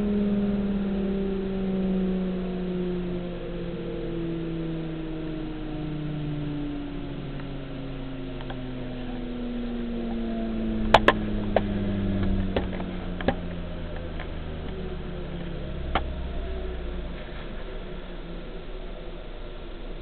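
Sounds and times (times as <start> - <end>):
jointer motor hum winding down: 0.0 - 19.1.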